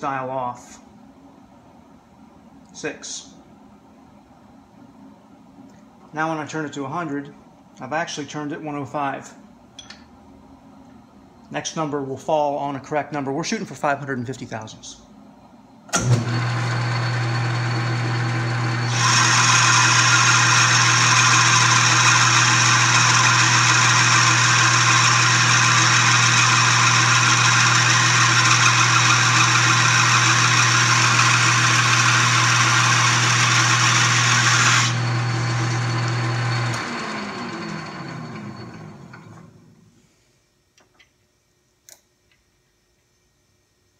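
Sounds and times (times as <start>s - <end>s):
spindle coasting down whine: 16.0s - 39.8s
lathe motor humming: 16.2s - 39.4s.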